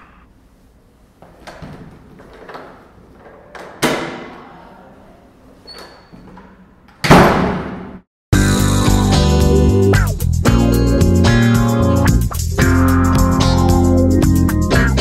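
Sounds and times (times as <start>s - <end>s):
band music with guitar and bass: 8.4s - 15.0s.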